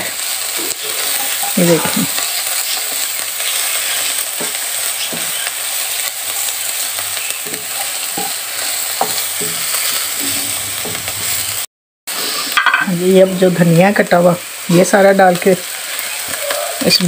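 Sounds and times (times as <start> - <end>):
vegetables sizzling in oil: 0.0 - 17.0
wooden spoon scraping wok: 0.1 - 12.7
spoon knocking on pan: 7.4 - 11.1.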